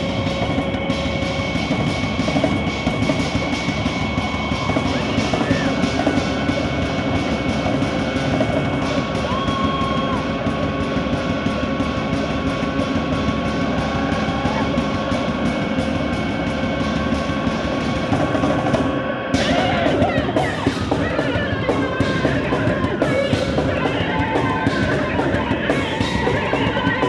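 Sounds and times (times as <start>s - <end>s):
fast drum kit strokes: 0.0s - 27.0s
loud live band music: 0.0s - 27.0s.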